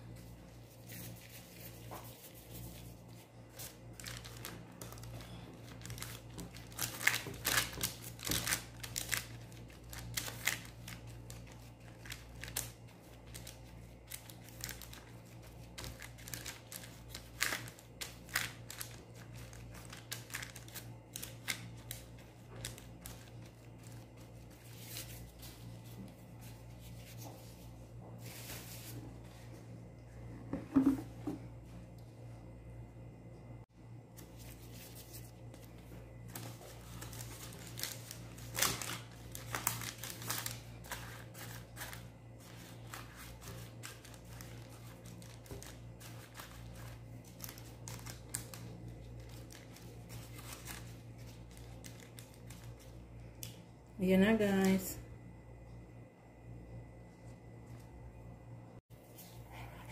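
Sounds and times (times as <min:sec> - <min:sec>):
baking paper and glove crinkling: 0:00.0 - 0:29.8, 0:34.1 - 0:53.4
steady low hum: 0:00.0 - 0:59.9.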